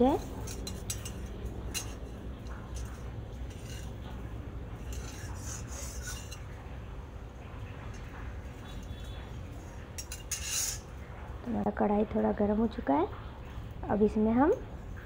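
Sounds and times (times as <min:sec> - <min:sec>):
metal spatula scraping a wok: 0:00.0 - 0:06.7, 0:07.9 - 0:11.0.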